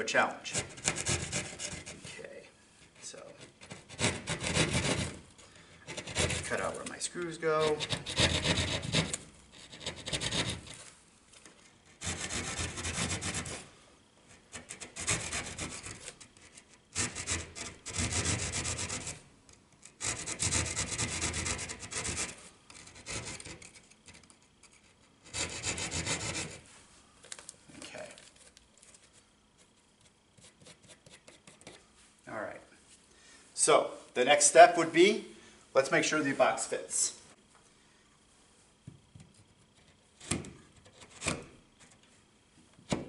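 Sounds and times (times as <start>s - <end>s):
hand saw cutting drywall: 0.5s - 2.1s, 3.4s - 5.2s, 5.8s - 6.8s, 7.6s - 10.8s, 11.9s - 13.7s, 14.4s - 19.2s, 19.9s - 26.6s.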